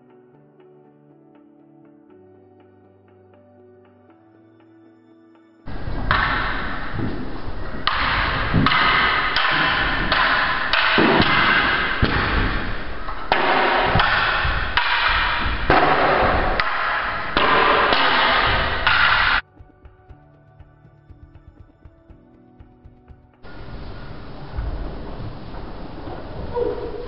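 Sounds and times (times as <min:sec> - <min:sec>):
loud steady hiss: 0:05.7 - 0:19.4, 0:23.4 - 0:27.0
wooden staffs striking: 0:05.7 - 0:19.4.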